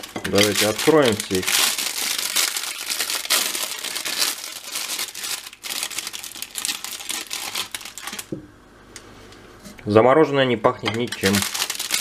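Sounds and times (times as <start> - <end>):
plastic packaging crinkling and tearing: 0.0 - 8.3, 10.9 - 12.0.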